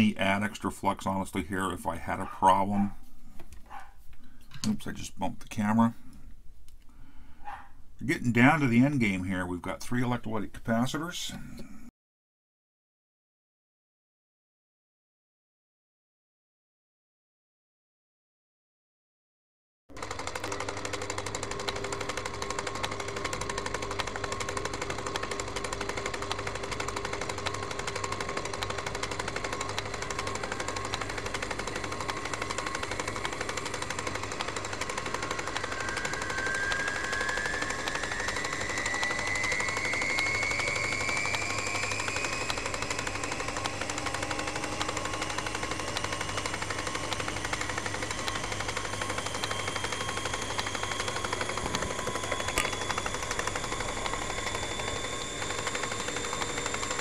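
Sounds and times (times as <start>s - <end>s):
rapid clicking clatter: 20.0s - 57.0s
thin rising whine: 20.0s - 57.0s.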